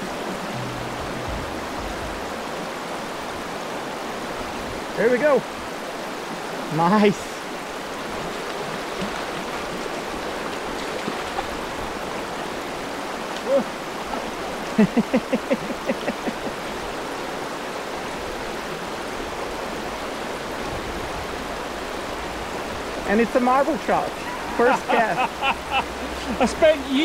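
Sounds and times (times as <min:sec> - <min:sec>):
river water rushing over stones: 0:00.0 - 0:27.0
person's voice: 0:06.7 - 0:07.4, 0:23.0 - 0:27.0.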